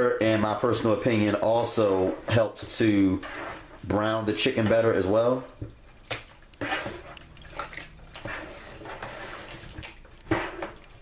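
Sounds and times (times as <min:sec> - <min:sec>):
hands squishing chicken in liquid: 0:05.6 - 0:11.0.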